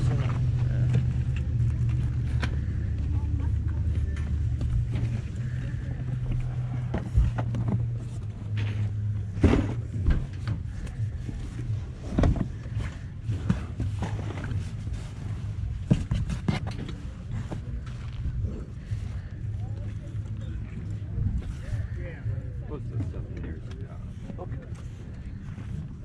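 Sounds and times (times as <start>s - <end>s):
steady low rumble: 0.0s - 26.0s.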